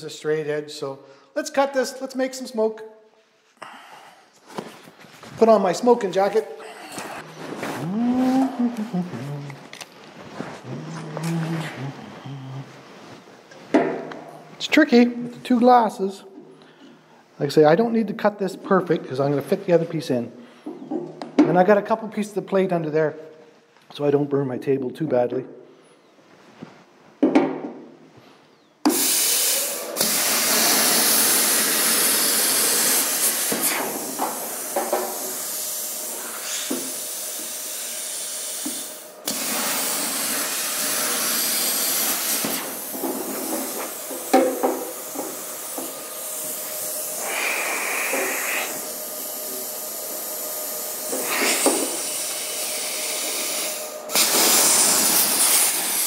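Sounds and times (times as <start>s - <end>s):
plasma cutter hissing: 28.9s - 56.0s.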